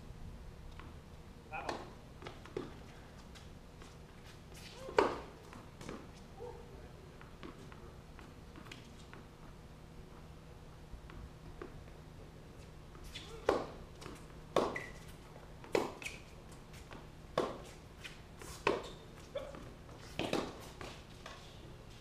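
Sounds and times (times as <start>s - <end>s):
tennis ball struck by rackets: 4.8s - 6.0s, 13.4s - 13.8s, 14.5s - 14.9s, 15.7s - 16.1s, 17.3s - 17.7s, 18.6s - 18.9s, 20.2s - 20.7s
tennis ball bouncing: 4.8s - 6.1s, 13.4s - 15.0s, 15.6s - 16.2s, 16.9s - 17.7s, 18.6s - 18.9s, 19.5s - 21.0s.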